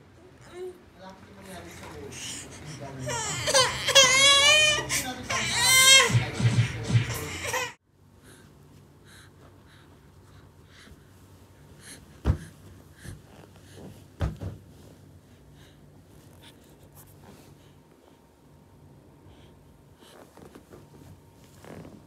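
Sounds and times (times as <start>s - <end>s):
soft breathing: 1.3s - 3.1s, 8.1s - 22.0s.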